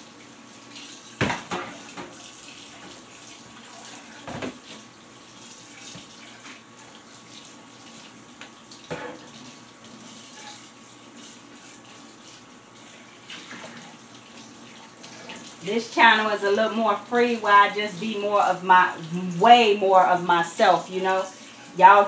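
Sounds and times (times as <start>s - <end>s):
faucet running into sink: 0.0s - 16.5s
dishes knocking against sink: 1.2s - 2.2s, 8.9s - 9.4s.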